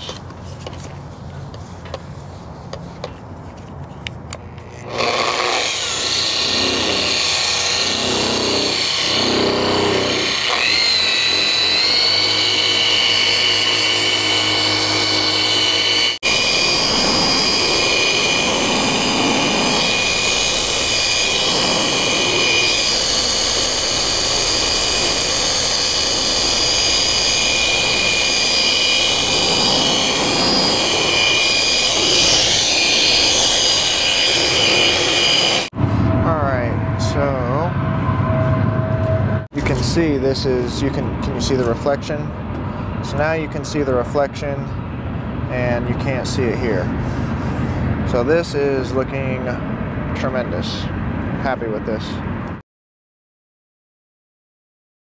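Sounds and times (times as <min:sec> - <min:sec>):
electric polisher whining: 0:04.6 - 0:35.8.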